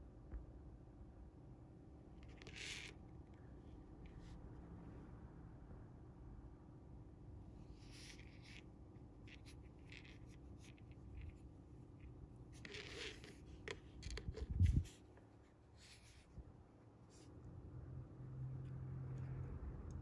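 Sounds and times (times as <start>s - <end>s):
fishing line rustling and scraping: 2.2s - 4.9s, 7.6s - 17.5s.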